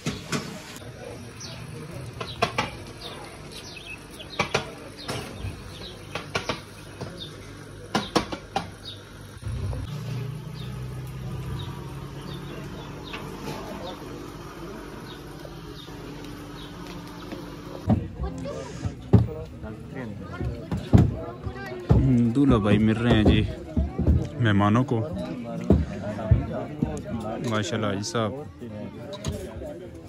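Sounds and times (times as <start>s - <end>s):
sharp clicks and knocks: 2.2s - 2.9s, 4.3s - 7.2s, 7.9s - 8.8s.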